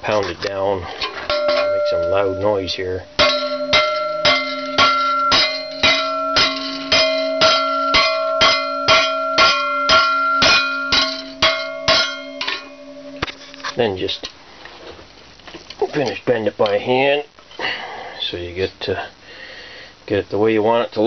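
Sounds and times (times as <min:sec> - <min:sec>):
hammer pounding steel plate: 0:01.0 - 0:13.7
steel clanging and ringing: 0:01.0 - 0:14.2.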